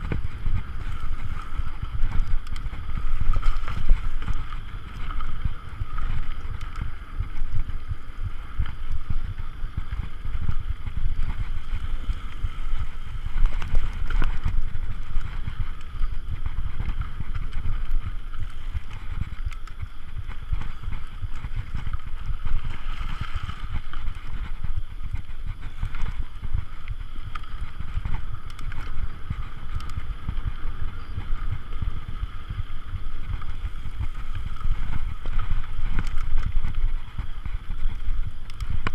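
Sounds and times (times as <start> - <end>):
bike rattling over bumps: 0.0 - 38.9
bike tyres on dirt: 0.0 - 38.9
wind buffeting microphone: 0.0 - 38.9.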